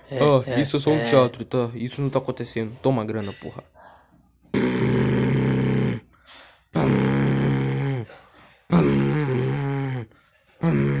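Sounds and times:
man making wordless vocal sounds: 6.7s - 11.0s.

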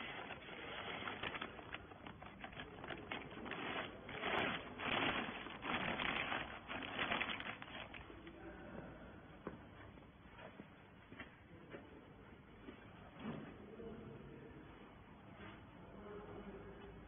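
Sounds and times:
plastic bag crinkling: 0.0s - 8.3s.

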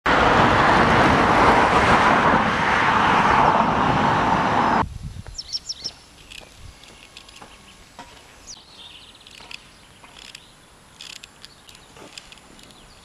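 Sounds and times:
loud rushing noise: 0.1s - 4.9s
birds chirping faintly: 5.3s - 13.0s.

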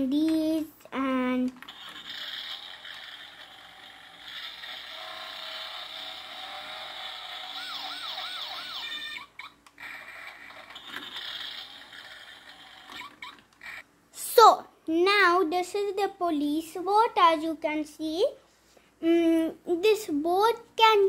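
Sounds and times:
toy police siren wailing: 4.2s - 13.8s.

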